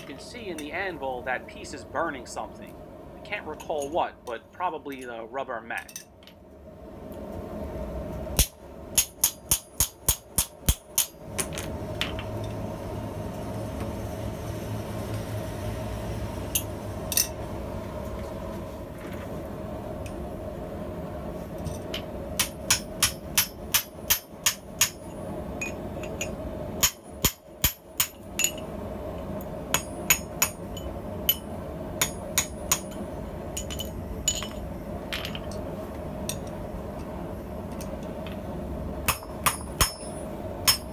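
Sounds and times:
hammer striking metal on anvil: 8.4 - 11.6, 22.4 - 28.6, 29.7 - 33.0, 39.0 - 40.9.

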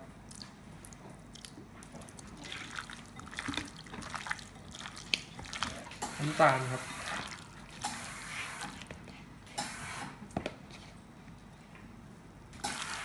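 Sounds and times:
hand kneading raw chicken: 0.3 - 9.1.

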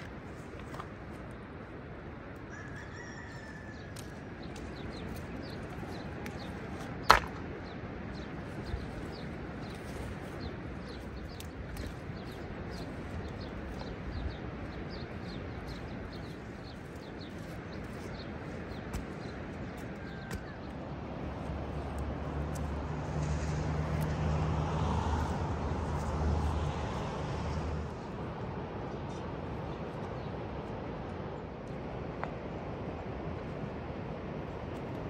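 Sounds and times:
steady outdoor hiss: 0.0 - 35.0
small birds chirping: 3.2 - 20.8
stone striking stone: 7.1 - 7.4.

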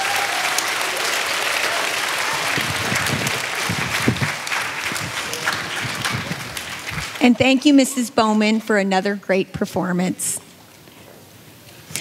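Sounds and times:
large audience applauding: 0.0 - 7.8.

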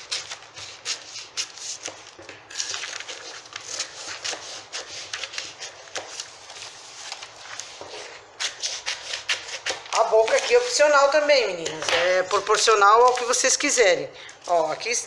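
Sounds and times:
scissors snipping paper: 0.0 - 6.3, 7.0 - 10.9.

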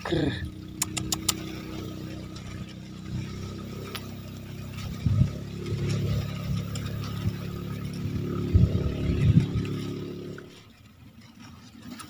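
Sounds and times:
motor humming low: 0.0 - 10.8
sharp clicks: 0.8 - 1.6.

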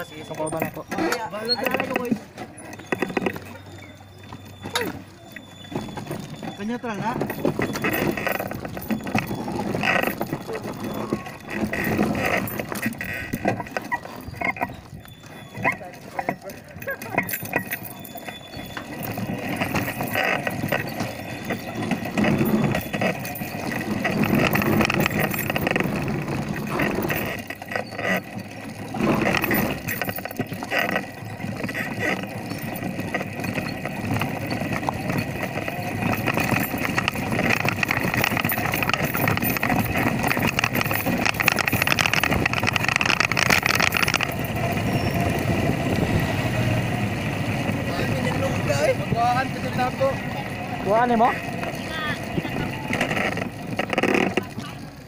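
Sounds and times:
motorcycle engine running: 5.8 - 55.0
wind noise on microphone: 34.5 - 49.4.

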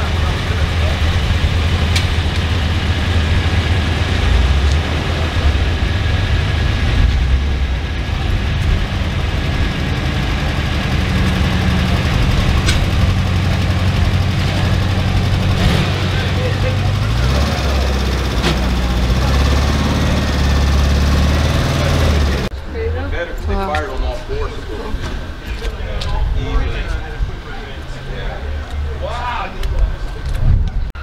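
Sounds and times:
car engine running at low revs: 0.0 - 22.6
car engines in background: 0.0 - 31.0.

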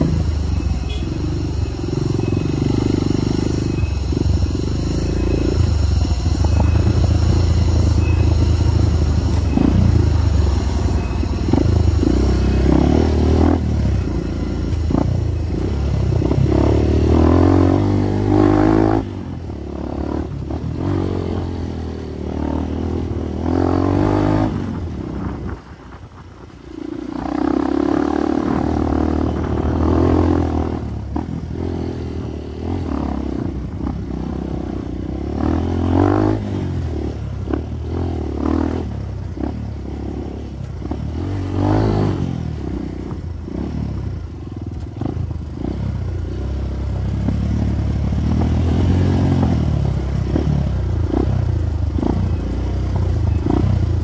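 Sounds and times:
motorcycle engine surging: 0.0 - 26.0.

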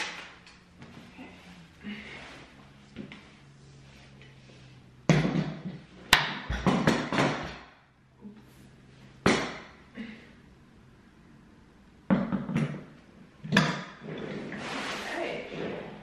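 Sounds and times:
chair parts thumping: 5.1 - 7.8.

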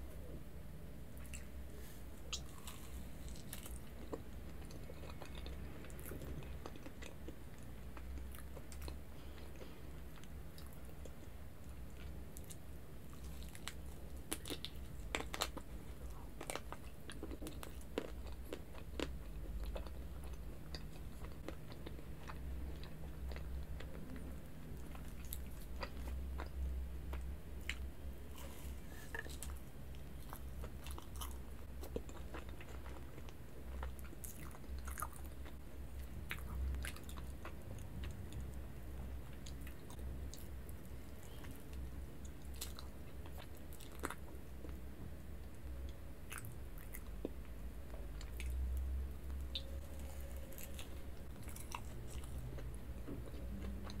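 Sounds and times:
steady low hum: 0.0 - 54.0
chewing and biting cake: 2.3 - 11.3, 11.9 - 38.6, 49.3 - 54.0.

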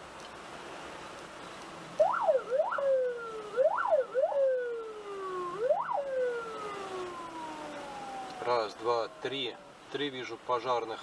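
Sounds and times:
emergency vehicle siren: 2.0 - 9.9.

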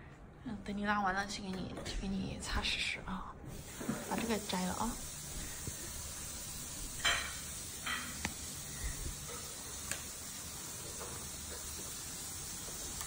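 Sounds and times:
faint steady hiss: 3.4 - 13.0.

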